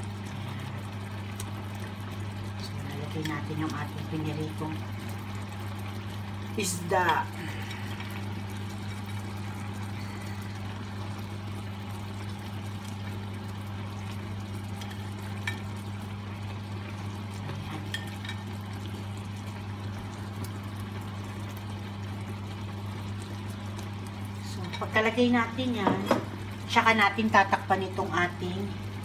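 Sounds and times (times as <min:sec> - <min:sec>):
low hum: 0:00.0 - 0:16.6
sauce bubbling in skillet: 0:00.0 - 0:29.0.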